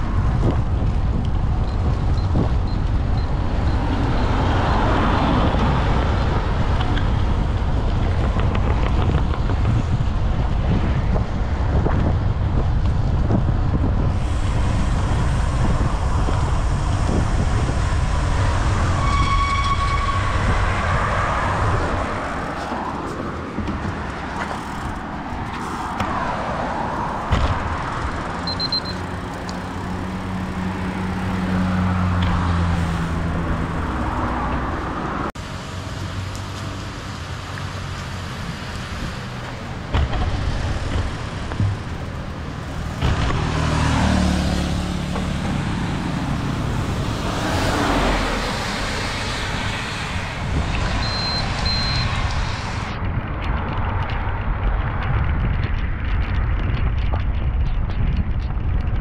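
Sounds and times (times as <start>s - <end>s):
road noise: 0.0s - 59.0s
vehicles passing by: 0.0s - 59.0s
short high beep: 28.5s - 29.0s, 51.0s - 52.2s.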